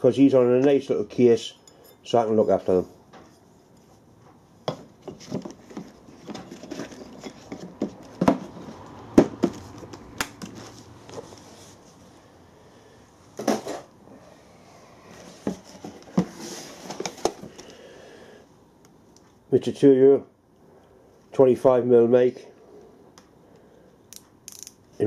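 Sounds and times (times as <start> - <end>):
cardboard rustling: 15.1 - 17.6.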